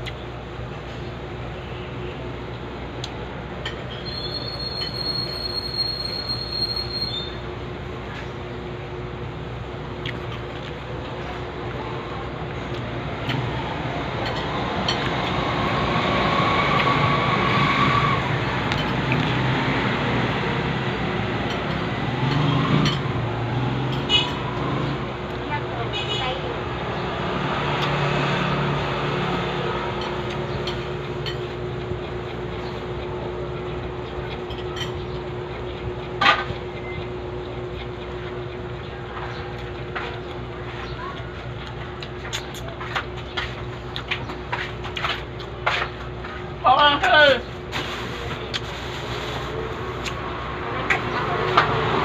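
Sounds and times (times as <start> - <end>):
vehicle engine rumbling: 0.0 - 52.0
constant low hum: 7.1 - 15.7, 18.1 - 27.2, 28.8 - 51.6
light clicks of eating: 10.0 - 10.9, 30.0 - 46.4, 48.5 - 48.7, 50.0 - 50.2.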